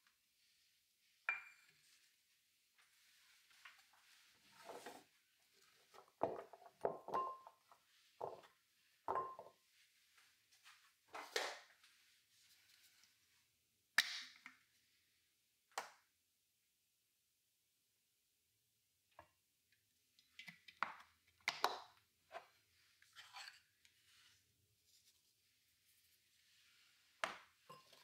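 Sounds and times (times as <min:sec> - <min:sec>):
glassy ring: 0:01.3 - 0:01.8
bowl and knife knocking on board: 0:09.1 - 0:09.5.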